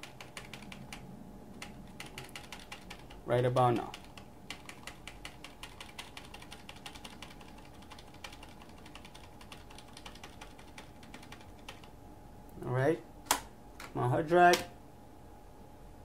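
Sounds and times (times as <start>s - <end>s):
keyboard key clicking: 1.6s - 3.2s.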